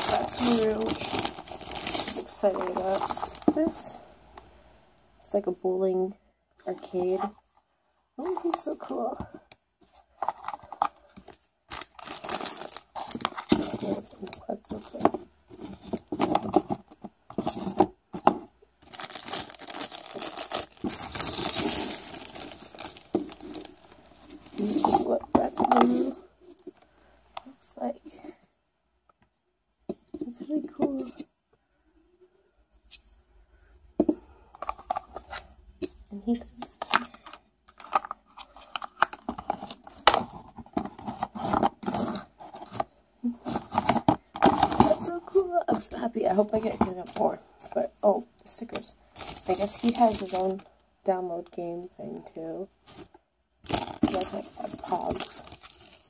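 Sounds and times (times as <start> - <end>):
plastic bag crinkling: 0.0 - 4.0, 10.2 - 27.5, 36.6 - 47.8, 48.5 - 50.7, 52.8 - 56.0.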